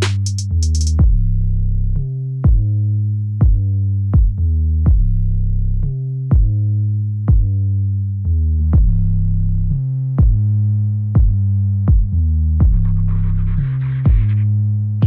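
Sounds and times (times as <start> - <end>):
drum machine kick: 0.0 - 1.3, 2.4 - 2.7, 3.4 - 5.2, 6.3 - 6.6, 7.3 - 7.6, 8.8 - 9.0, 10.2 - 10.5, 11.2 - 12.9, 14.1 - 14.3
synth bass line: 0.0 - 15.0.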